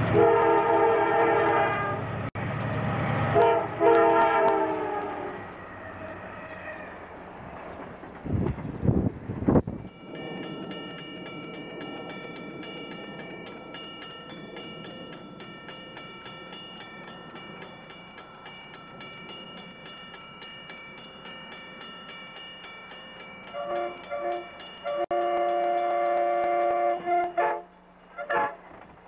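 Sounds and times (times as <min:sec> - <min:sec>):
freight train cars rumbling: 0:00.0 - 0:29.0
crossing warning bell ringing: 0:09.6 - 0:28.7.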